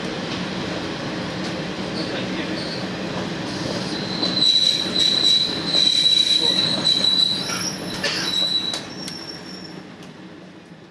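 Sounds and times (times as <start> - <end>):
low rumble of running train: 0.0 - 10.9
train wheels squealing: 1.9 - 2.9, 3.5 - 9.9.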